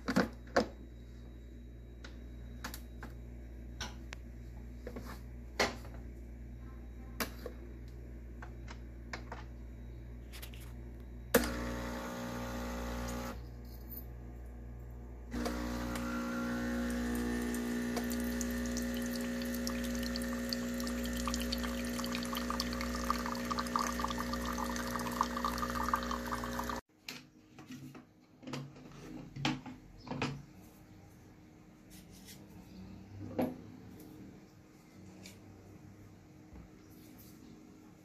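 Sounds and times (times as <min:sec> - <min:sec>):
espresso machine pump humming: 0:11.4 - 0:13.4, 0:15.3 - 0:26.8
coffee pouring into a mug: 0:15.4 - 0:26.8.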